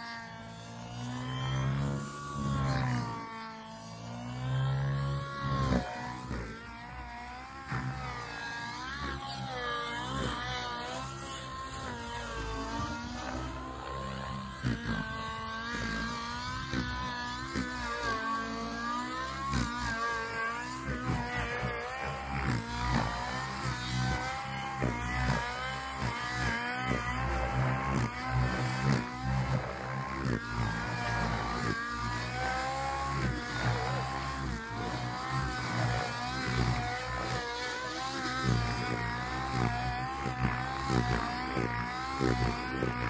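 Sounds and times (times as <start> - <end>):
rc helicopter engine and rotors: 0.0 - 43.0.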